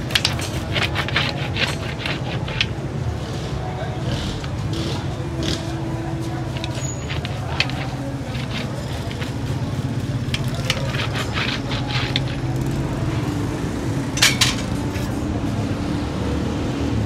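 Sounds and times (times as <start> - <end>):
roller cutter scraping candy slab: 0.0 - 3.0, 4.3 - 13.4.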